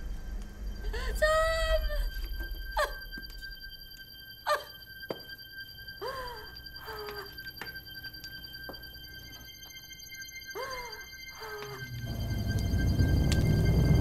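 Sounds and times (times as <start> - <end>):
faint high-pitched tone: 0.0 - 14.0
woman crying: 0.8 - 3.3, 4.5 - 4.8, 6.0 - 7.5, 10.6 - 11.9.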